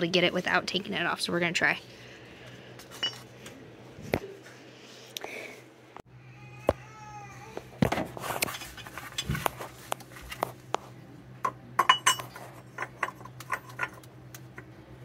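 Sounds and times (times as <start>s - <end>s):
metal tool clinking against pulley: 3.0s - 3.2s, 11.8s - 14.0s.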